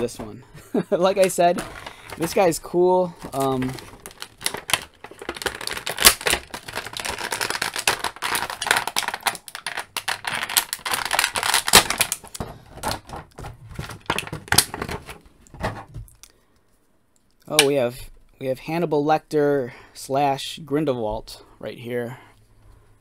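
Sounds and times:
plastic packaging crackling: 1.0s - 16.2s.

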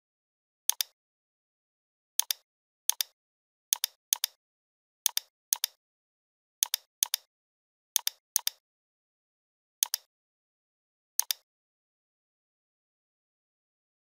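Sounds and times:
computer mouse clicks: 0.7s - 1.0s, 2.2s - 4.4s, 5.1s - 5.8s, 6.6s - 7.3s, 8.0s - 8.6s, 9.8s - 10.1s, 11.2s - 11.5s.

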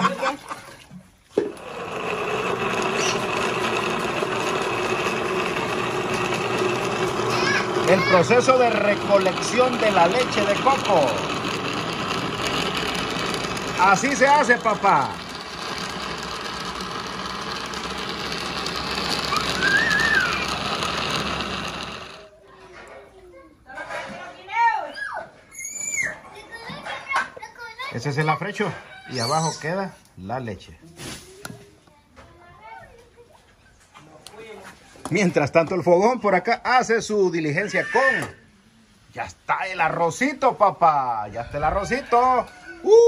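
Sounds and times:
blender grinding: 1.4s - 22.3s.

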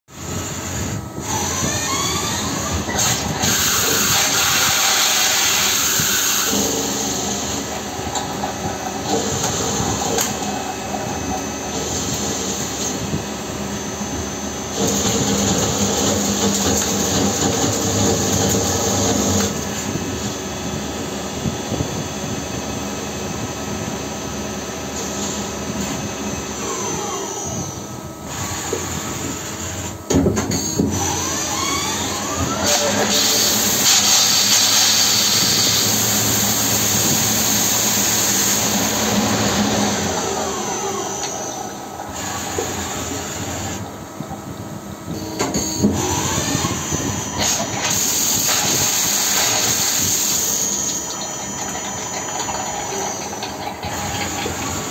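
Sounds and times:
lathe spindle whining: 0.2s - 54.9s
cutting tool hissing: 1.3s - 7.6s.

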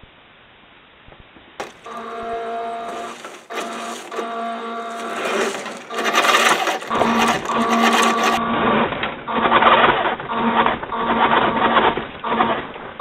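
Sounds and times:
toy truck motor whining: 1.6s - 8.4s.

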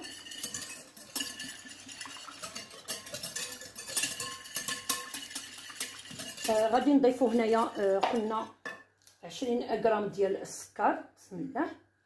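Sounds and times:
wire whisk beating eggs in bowl: 0.0s - 8.8s.

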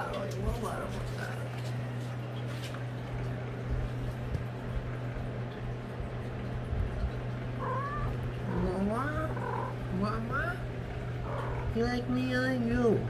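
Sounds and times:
steady low hum: 0.0s - 13.0s
cat meowing: 7.6s - 8.6s.

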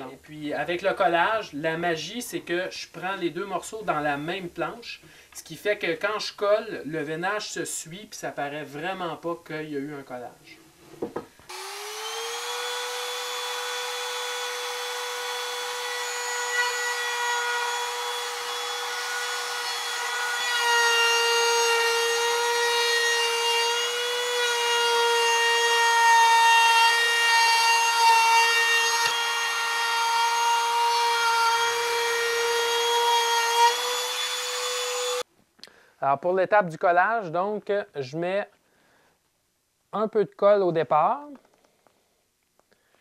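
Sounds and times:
router cutting wood: 11.5s - 35.2s.

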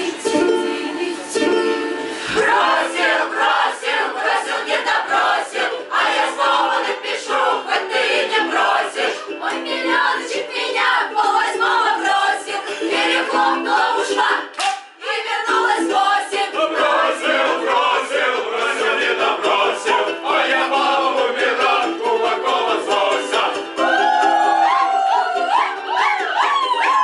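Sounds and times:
choir singing: 0.0s - 25.6s
ukulele: 0.0s - 27.0s
drawn-out wailing voices: 22.6s - 27.0s.

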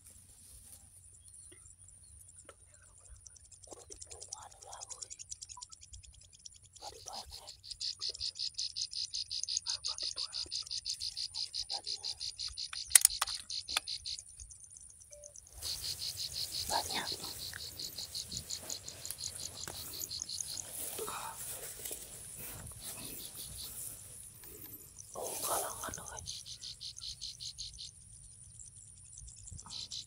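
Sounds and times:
insect trilling: 2.7s - 30.0s
sharp clicks: 12.3s - 14.2s.

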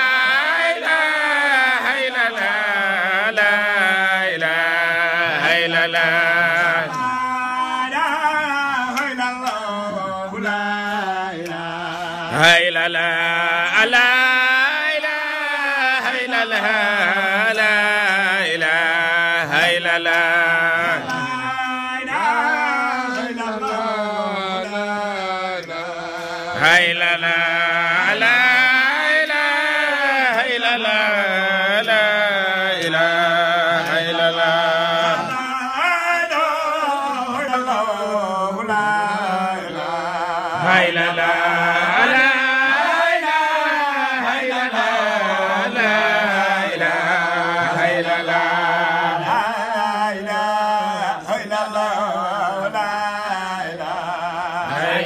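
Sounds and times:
man chanting devotional song: 0.0s - 55.0s.

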